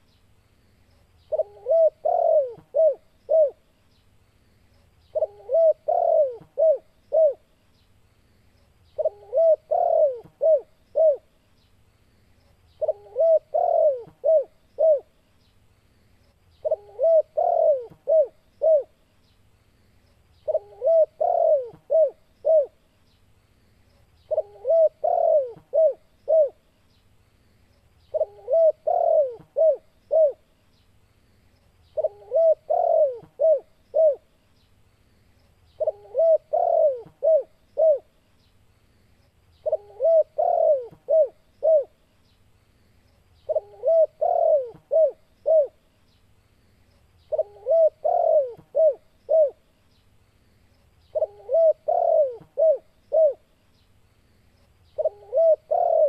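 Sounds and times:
dove cooing: 1.3 - 3.7, 5.1 - 7.5, 9.0 - 11.3, 12.8 - 15.2, 16.6 - 19.0, 20.4 - 22.8, 24.3 - 26.6, 28.1 - 30.4, 31.9 - 34.3, 35.8 - 38.1, 39.6 - 42.0, 43.4 - 45.8, 47.3 - 49.6, 51.1 - 53.5, 55.0 - 56.0.

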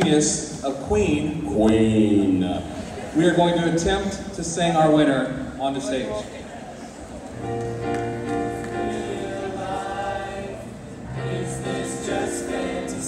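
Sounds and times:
vocal group singing harmony: 8.3 - 13.0.

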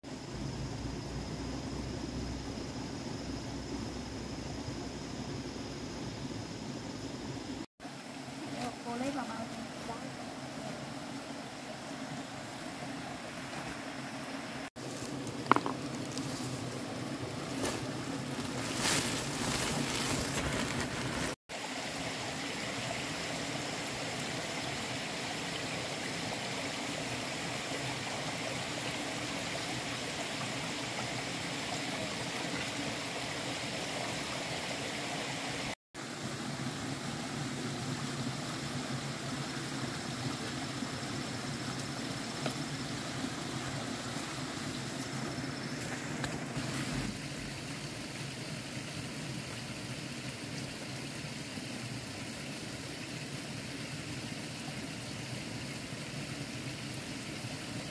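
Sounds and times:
rocky stream flowing: 8.2 - 36.4
plastic sack rustling: 14.8 - 21.4.

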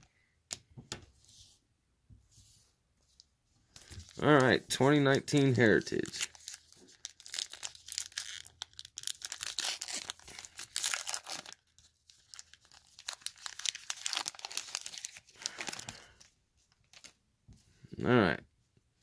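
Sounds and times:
wrapper crinkling and tearing: 3.8 - 17.2.

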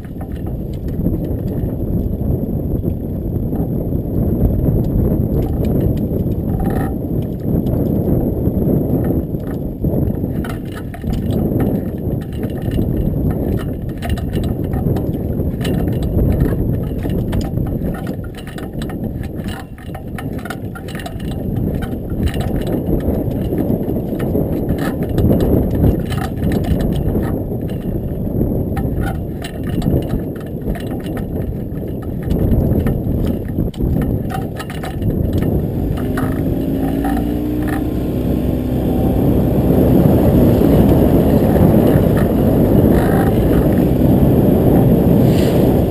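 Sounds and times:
wind buffeting the microphone: 0.0 - 45.9
water slapping against a hull: 9.0 - 38.0.

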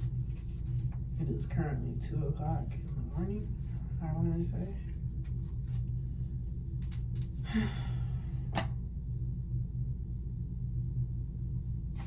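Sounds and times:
low room hum: 0.0 - 12.0
breathy sigh: 7.4 - 8.4.

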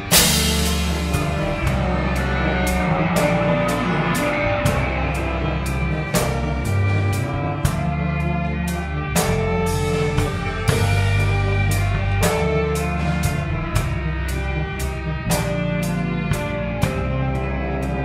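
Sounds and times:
background music drum beat: 0.0 - 8.0
held bass notes: 0.0 - 18.0.

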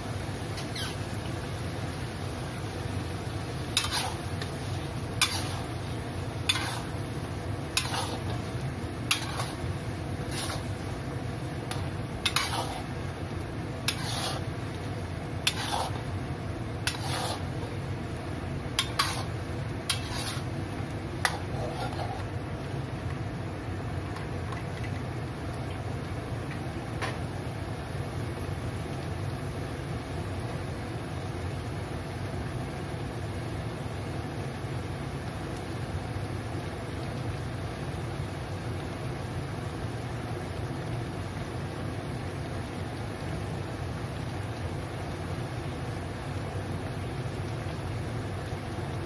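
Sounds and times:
metal spatula scraping a wok: 0.6 - 1.0, 3.7 - 7.1, 7.7 - 10.8, 11.7 - 12.9, 13.8 - 14.6, 15.4 - 16.1, 16.8 - 17.6, 18.8 - 20.6, 21.2 - 22.3.

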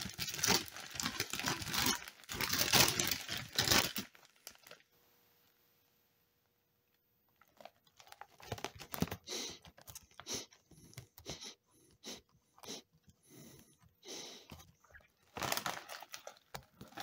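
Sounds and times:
potato chips being crunched: 0.0 - 4.8, 15.3 - 17.0.

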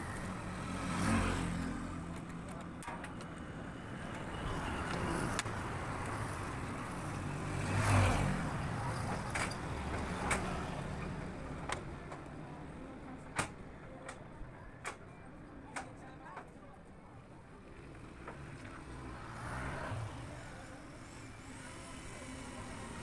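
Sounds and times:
vehicle passing: 4.6 - 9.0.

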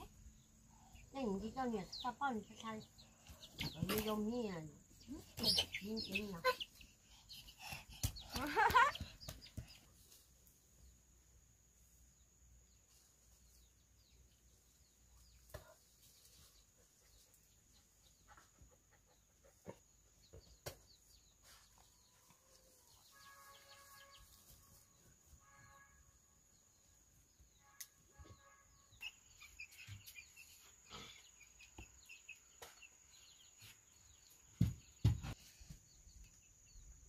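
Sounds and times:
high chirps of chicks: 0.0 - 11.0, 19.9 - 25.4, 26.5 - 37.0.

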